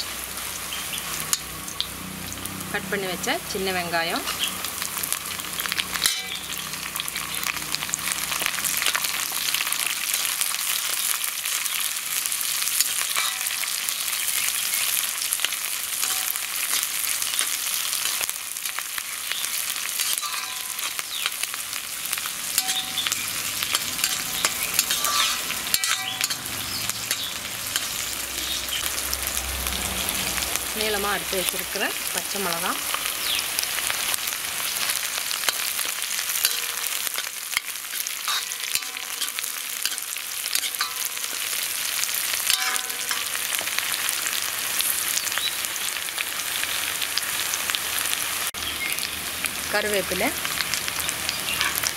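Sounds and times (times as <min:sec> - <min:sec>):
food sizzling in hot oil: 0:00.0 - 0:51.9
ladle scraping pan: 0:23.7 - 0:26.5.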